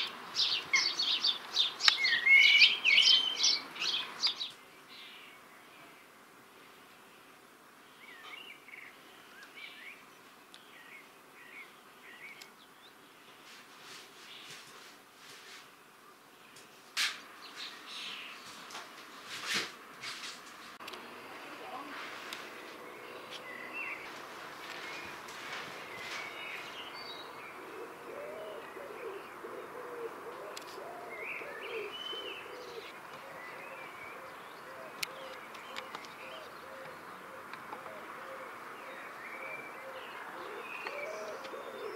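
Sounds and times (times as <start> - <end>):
faint starling whistled calls: 0.0 - 5.4
small birds chirping: 0.0 - 19.3, 20.2 - 41.9
pigeon cooing: 27.5 - 41.9.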